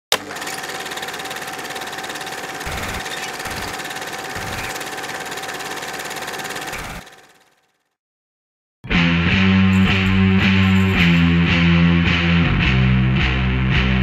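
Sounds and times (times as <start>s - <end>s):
film projector clatter: 0.1s - 7.9s
motor hum: 0.1s - 7.9s, 9.8s - 11.5s.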